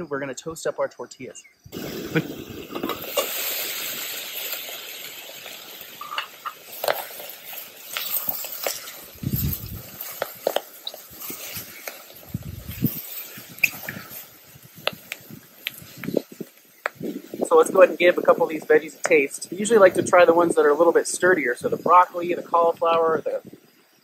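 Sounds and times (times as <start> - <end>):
vegetables sizzling in oil: 1.7 - 24.0.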